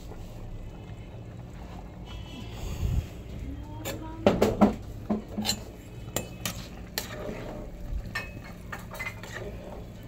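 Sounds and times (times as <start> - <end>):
metal spoon clinking in pot: 5.3 - 7.1.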